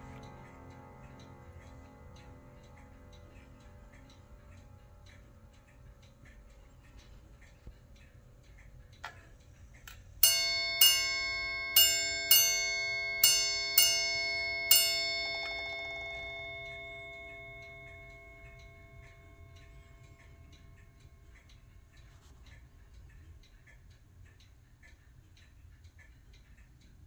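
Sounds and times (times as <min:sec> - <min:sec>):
ship's clock bell striking: 0:00.0 - 0:02.9, 0:10.2 - 0:21.6
clock mechanism click: 0:00.0 - 0:26.8
clock ticking softly: 0:00.0 - 0:27.0.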